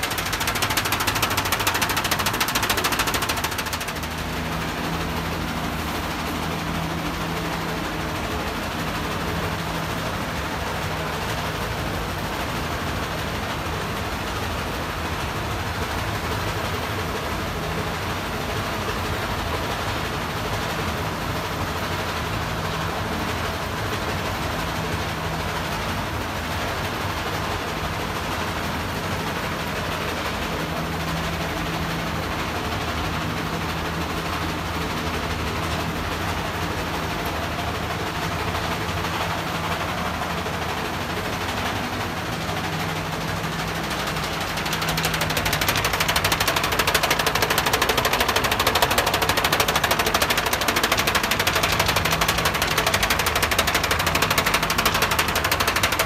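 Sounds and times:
fast rattle: 0.0 - 11.7, 29.3 - 56.0
printer mechanical hum: 0.0 - 56.0.

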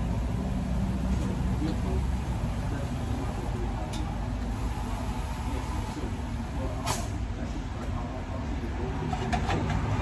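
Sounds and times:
short hiss: 6.8 - 7.2.

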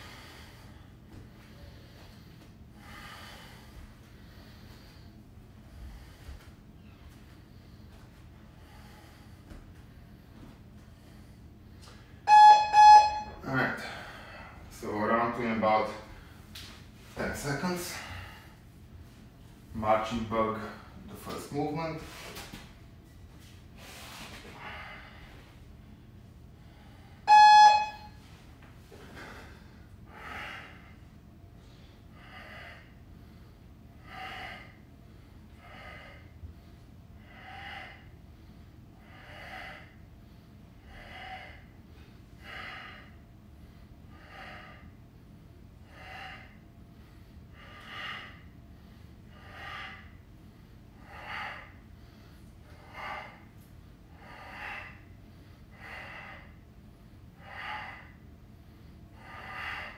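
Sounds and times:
electronic timer beep: 12.3 - 13.3, 27.3 - 28.1.

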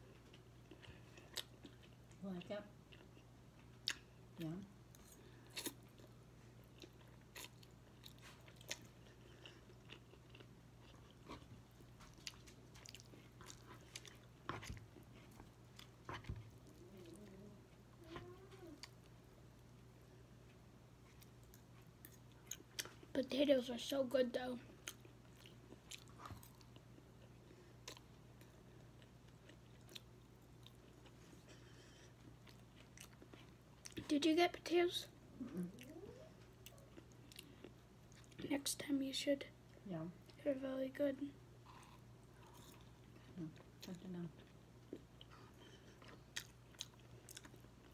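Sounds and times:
chewing and mouth sounds: 0.0 - 2.2, 2.9 - 4.1, 4.9 - 19.1, 24.7 - 34.1, 35.4 - 38.5, 41.6 - 47.9
faint low hum: 0.0 - 47.9.

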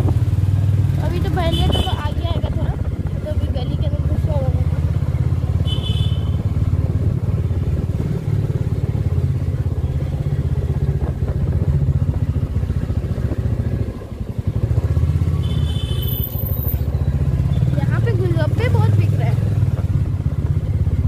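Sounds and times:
motorbike engine rumbling: 0.0 - 21.0.

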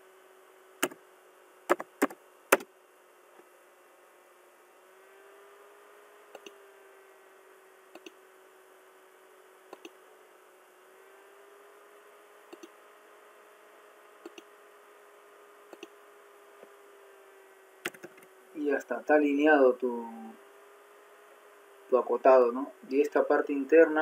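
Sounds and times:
faint steady hum: 0.0 - 24.0
mouse button clicking: 9.7 - 10.0, 12.5 - 12.7, 14.2 - 14.5.

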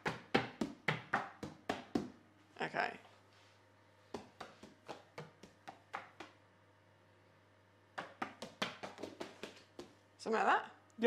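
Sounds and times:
hand tapping on books: 0.0 - 2.2, 4.1 - 6.4, 8.0 - 10.0.

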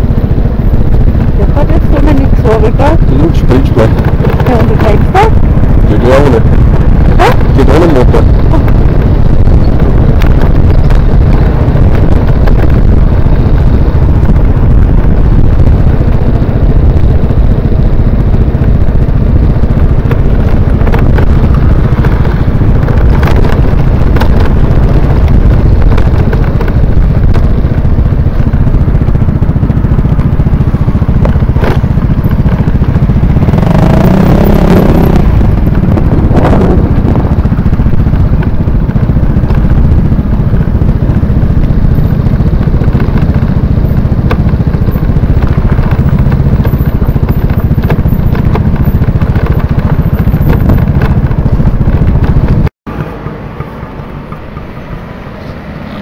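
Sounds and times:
motor scooter engine running: 0.0 - 56.0
wind and road rumble: 0.0 - 56.0.

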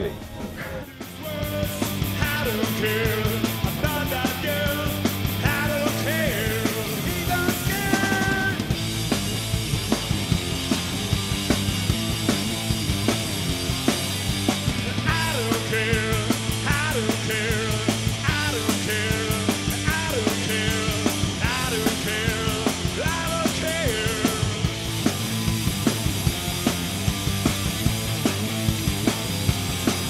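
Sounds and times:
man singing: 0.0 - 8.8, 15.0 - 24.7
punk rock band playing: 0.0 - 30.0.

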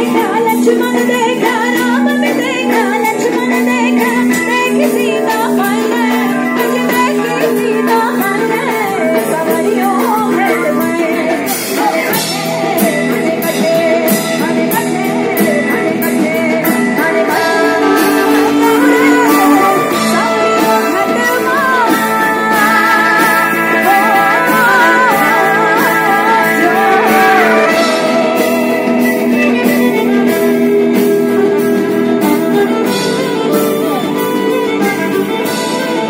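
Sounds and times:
percussion strikes: 0.0 - 36.0
person singing: 0.0 - 36.0
steady held accompaniment tone: 17.0 - 35.4.

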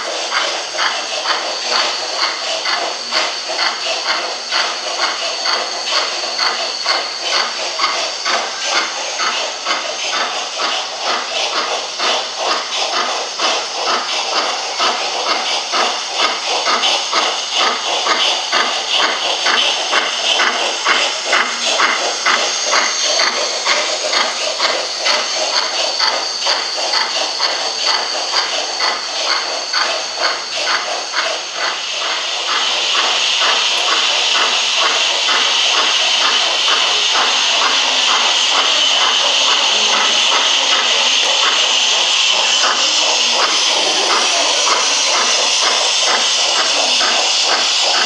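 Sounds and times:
model steam locomotive chuffing: 0.0 - 48.0
steam hiss: 0.0 - 48.0.

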